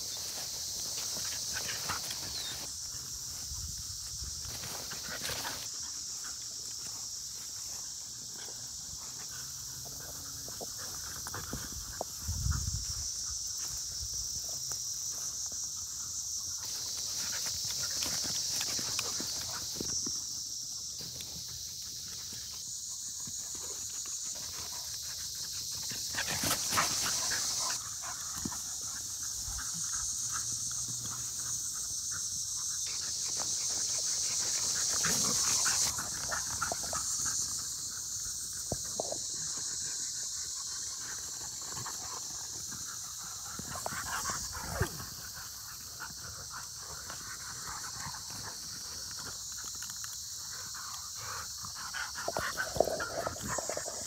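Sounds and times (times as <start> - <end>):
dogs playing roughly: 51.8 - 54.0.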